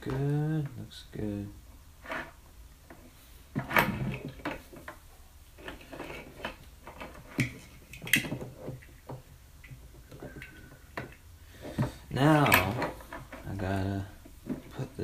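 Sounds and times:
clicks and knocks of small parts: 0:05.6 - 0:11.2.

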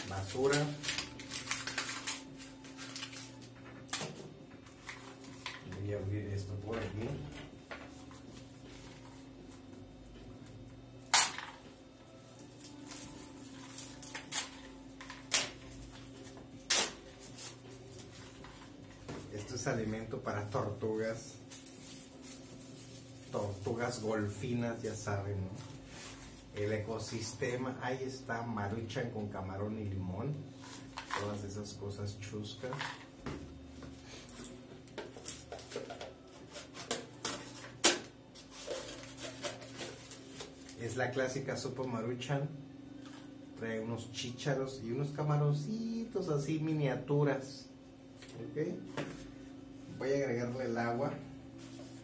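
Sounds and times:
plastic wrap crackling: 0:00.0 - 0:03.5.

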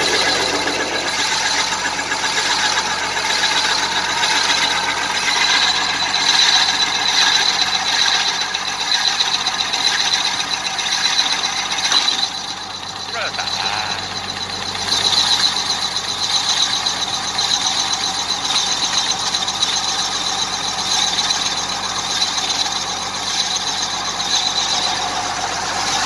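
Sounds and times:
cutter head grinding into wood: 0:00.0 - 0:05.3.

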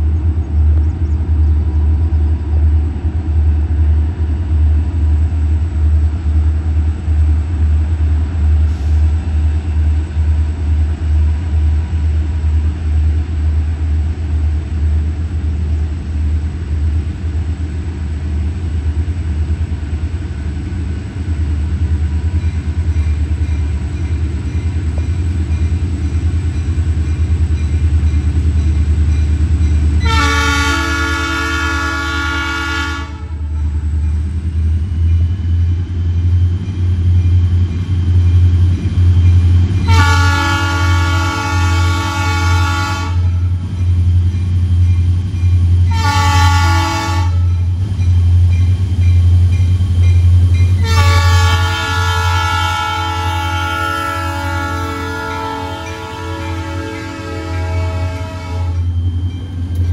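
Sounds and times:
diesel locomotive engine rumble: 0:00.0 - 0:59.9
locomotive horn blast: 0:30.0 - 0:33.8, 0:39.8 - 0:43.6, 0:45.8 - 0:47.7, 0:50.8 - 0:58.9.

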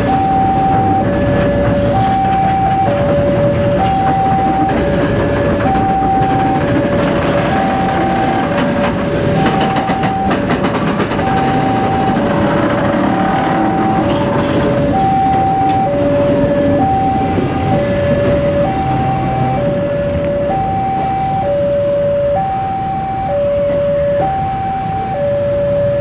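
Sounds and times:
train wheels clicking over rail joints: 0:00.0 - 0:20.3
two-tone level-crossing alarm: 0:00.0 - 0:26.0.

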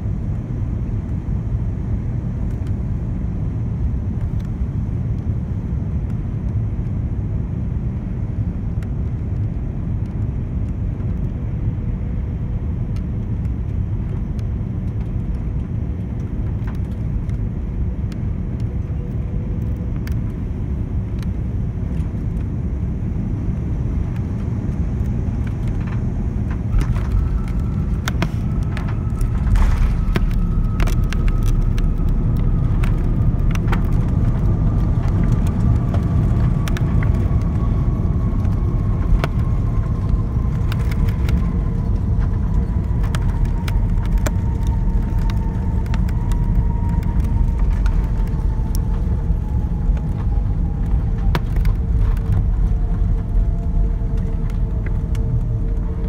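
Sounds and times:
airliner cabin rumble: 0:00.0 - 0:56.0
steady whine: 0:12.7 - 0:56.0.

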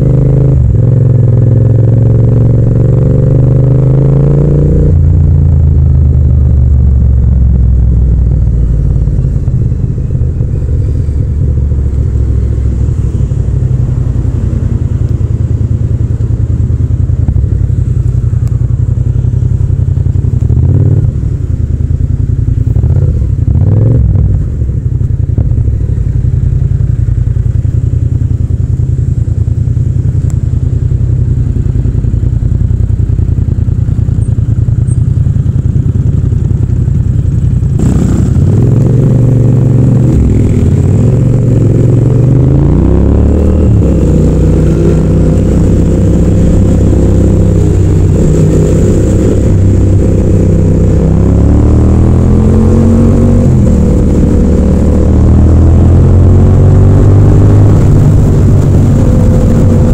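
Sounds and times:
motorcycle accelerating through gears: 0:00.0 - 0:59.9
motorcycle engine idling: 0:05.0 - 0:23.7, 0:24.3 - 0:41.9.

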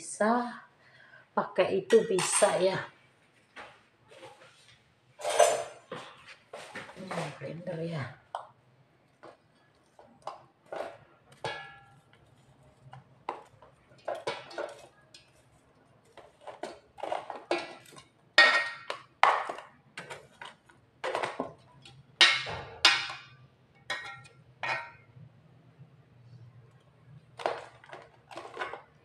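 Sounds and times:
spoon knocking on plastic and metal: 0:09.2 - 0:15.4, 0:16.1 - 0:25.0.

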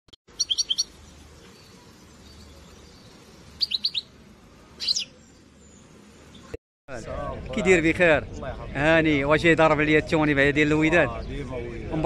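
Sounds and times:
goldfinch chirping: 0:00.3 - 0:04.1, 0:04.8 - 0:05.2.

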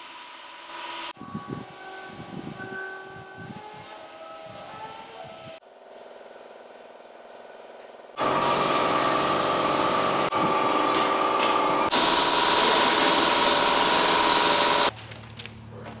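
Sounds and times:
paint spray gun hissing: 0:08.2 - 0:10.3, 0:11.9 - 0:14.9.

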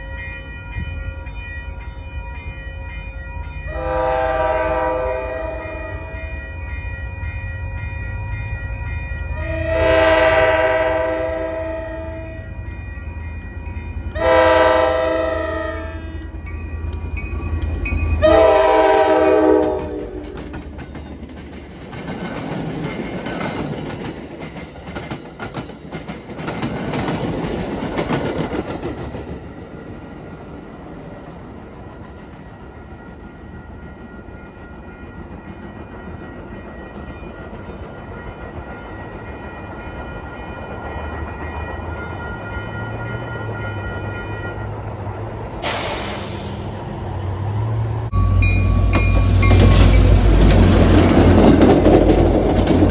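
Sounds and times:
train horn blasts: 0:03.7 - 0:06.2, 0:09.4 - 0:12.4, 0:14.1 - 0:16.4, 0:18.2 - 0:20.5
train wheels clickety-clack: 0:16.8 - 0:44.1, 0:48.6 - 0:52.9.

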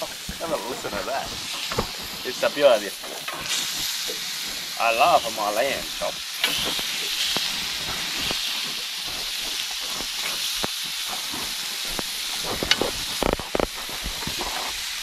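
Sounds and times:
meat sizzling on a grill: 0:00.0 - 0:15.0.

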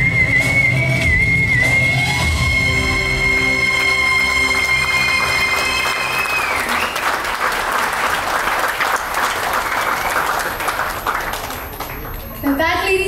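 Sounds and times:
backing music: 0:00.0 - 0:07.5
audience clapping: 0:03.2 - 0:12.4
woman whistling held note: 0:05.8 - 0:07.2.

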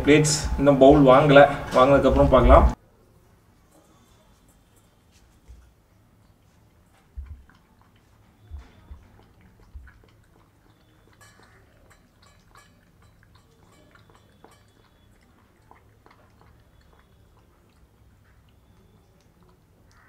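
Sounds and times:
puppy chewing: 0:03.8 - 0:20.0
food clicking against metal bowl: 0:07.0 - 0:20.0.

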